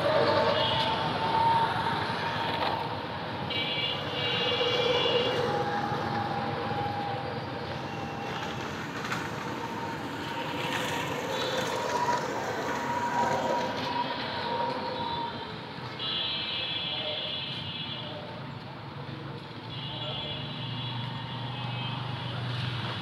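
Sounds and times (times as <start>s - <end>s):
passing vehicle rumble: 0.0s - 15.9s.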